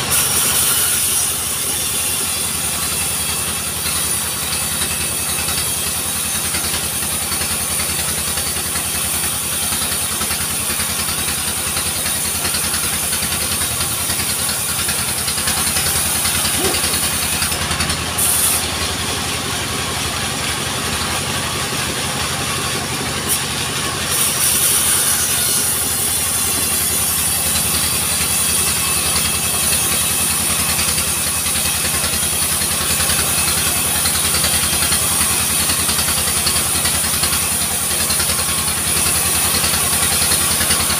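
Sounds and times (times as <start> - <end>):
saw whining: 0.0 - 40.9
engine humming: 13.7 - 24.0.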